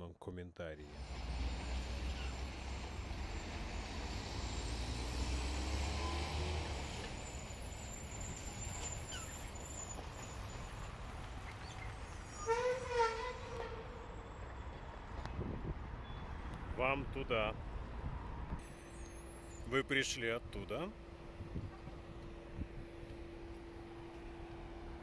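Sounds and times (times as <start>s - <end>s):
passing vehicles rumble: 0.8s - 25.0s
wavering horn blare: 12.3s - 14.0s.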